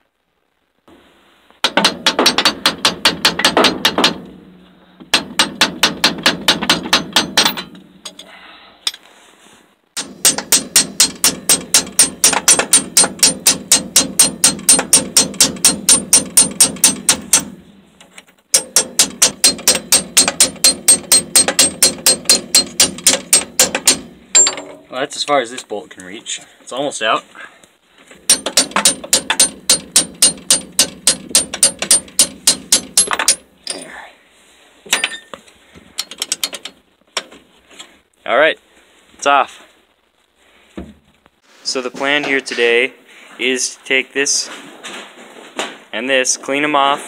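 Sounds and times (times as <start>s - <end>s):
hammer tapping metal bolt: 1.6s - 4.4s, 5.1s - 8.2s, 10.0s - 17.6s, 18.5s - 24.8s, 28.3s - 33.4s, 36.0s - 37.3s.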